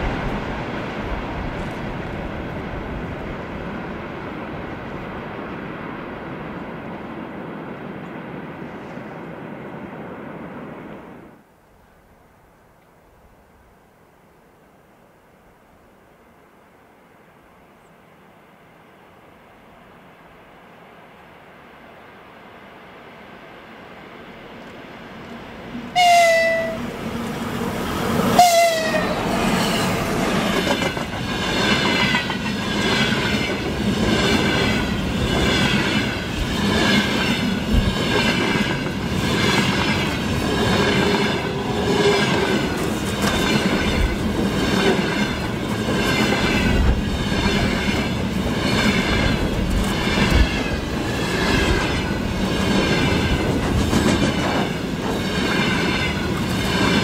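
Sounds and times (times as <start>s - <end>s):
train horn blasts: 25.9s - 27.0s, 28.3s - 29.3s
train wheels clacking over rail joints: 28.4s - 57.0s.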